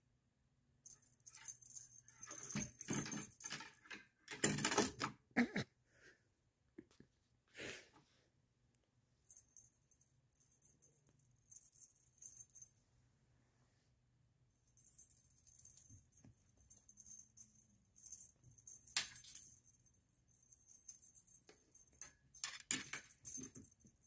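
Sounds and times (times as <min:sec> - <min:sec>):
feather toy rustling and knocking: 0:01.2 - 0:04.4.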